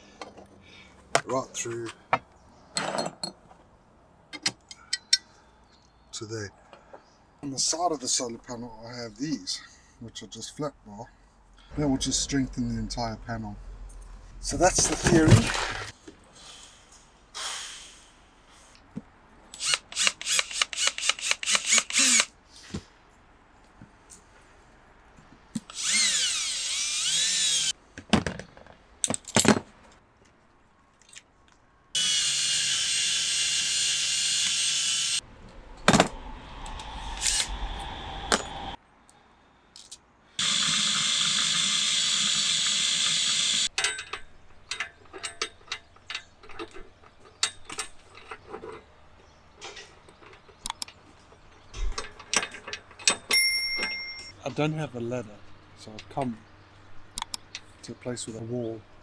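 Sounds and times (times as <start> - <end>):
cordless drill boring through metal: 19.6 - 22.3, 25.7 - 27.7, 32.0 - 35.2, 40.4 - 43.7.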